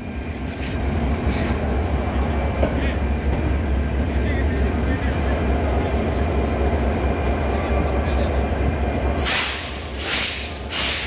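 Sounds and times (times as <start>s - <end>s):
train wheels rumbling on rails: 0.0s - 11.0s
short loud hisses: 9.2s - 11.0s.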